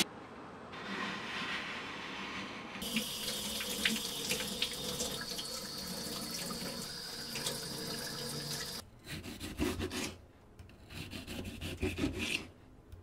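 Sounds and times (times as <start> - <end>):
tap water running into sink: 2.8 - 8.8.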